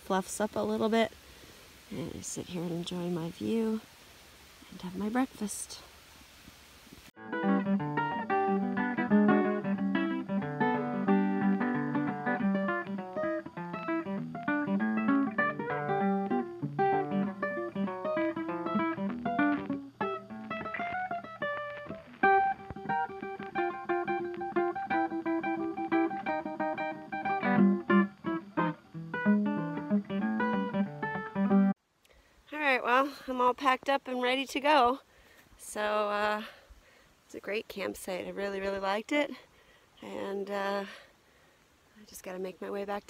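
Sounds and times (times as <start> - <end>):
acoustic guitar plucking: 7.2 - 31.7.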